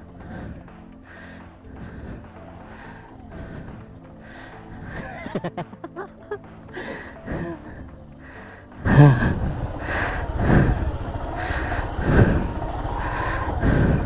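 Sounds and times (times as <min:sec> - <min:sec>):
motorcycle engine with throttle blips: 0:06.4 - 0:14.0.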